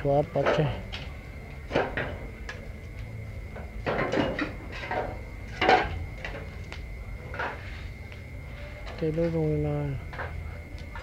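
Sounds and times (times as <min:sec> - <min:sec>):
tool knocking and scraping coals: 0:00.3 - 0:02.6.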